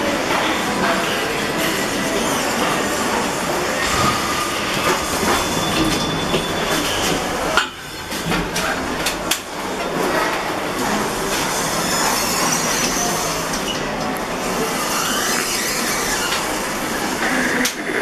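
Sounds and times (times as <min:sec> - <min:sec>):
lift running: 0:00.0 - 0:17.9.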